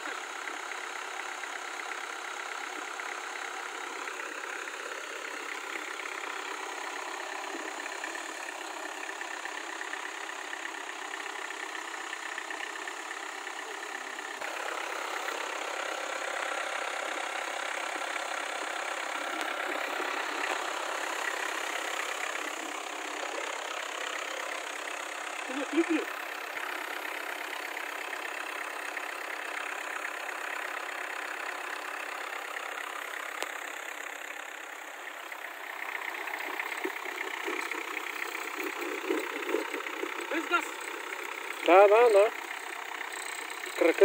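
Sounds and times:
engine running at low revs: 0.0 - 44.0.

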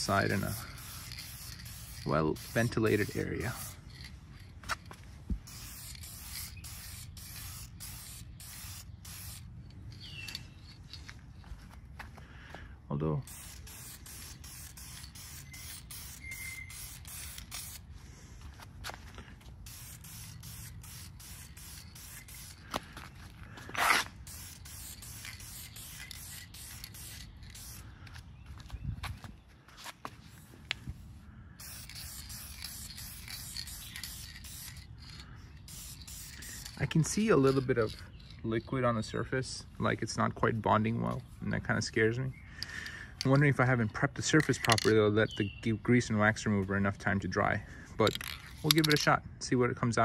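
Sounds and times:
aerosol can spraying hisses: 0.0 - 3.8, 5.4 - 9.4, 13.3 - 17.8, 19.7 - 22.7, 24.2 - 27.8, 31.6 - 34.9, 35.6 - 36.8.

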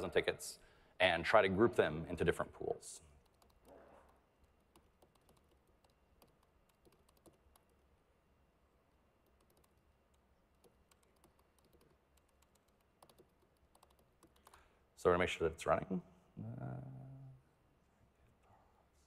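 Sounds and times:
low steady hum: 0.0 - 19.0
laptop keyboard typing: 3.2 - 7.9, 9.2 - 14.7.

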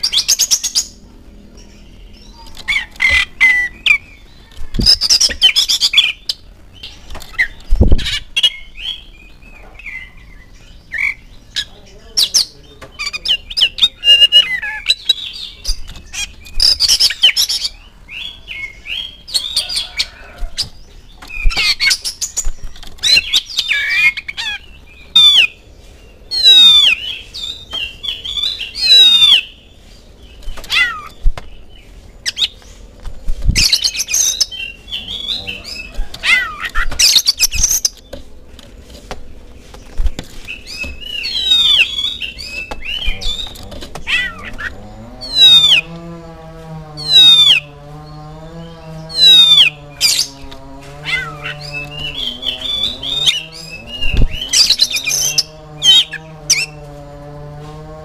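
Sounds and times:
wings fluttering: 4.4 - 8.4, 19.6 - 24.6, 30.2 - 58.0
bird singing whistles and chatter: 10.9 - 25.6, 26.2 - 29.6, 40.4 - 45.9, 47.0 - 47.7, 49.0 - 50.4, 51.0 - 56.8.

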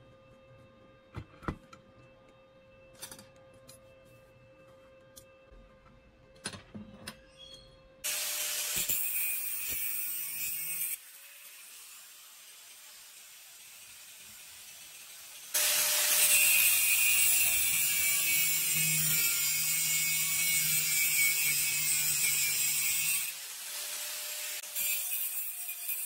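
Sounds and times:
angle grinder grinding steel: 8.1 - 26.0.

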